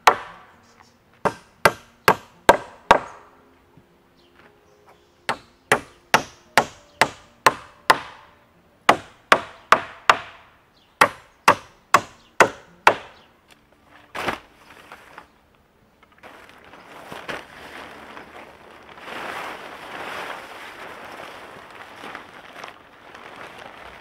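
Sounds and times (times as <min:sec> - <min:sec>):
hammer striking wooden boards: 0:00.0 - 0:00.5, 0:01.2 - 0:03.2, 0:05.3 - 0:08.3, 0:08.9 - 0:13.2.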